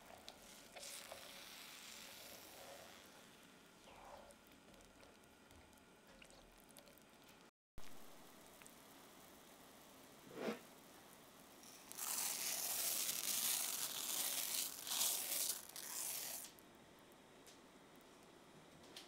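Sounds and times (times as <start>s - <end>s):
broth simmering: 0.0s - 18.5s
rice grains pouring into pan: 0.4s - 3.2s, 11.6s - 16.6s.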